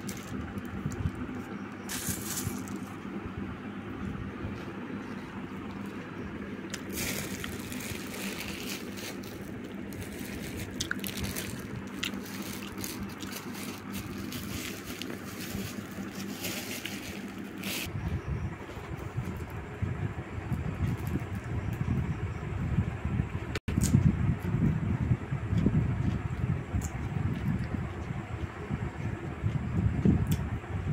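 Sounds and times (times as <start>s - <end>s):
steady low hum: 0.0s - 30.9s
plastic packet crinkling: 6.7s - 17.9s.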